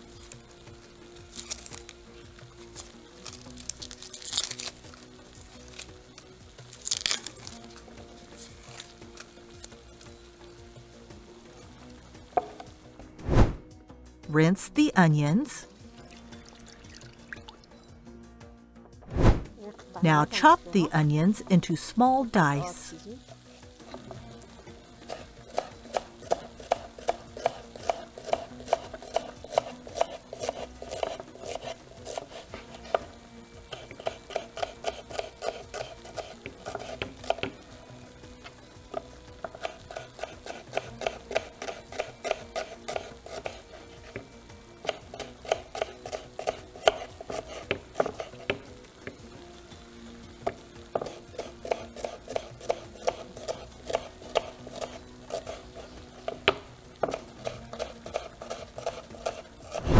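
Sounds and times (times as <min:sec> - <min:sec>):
knife chopping on wooden board: 0:25.1 - 0:33.1, 0:39.0 - 0:44.2, 0:44.8 - 0:49.2, 0:50.4 - 0:55.6, 0:56.2 - 0:59.9.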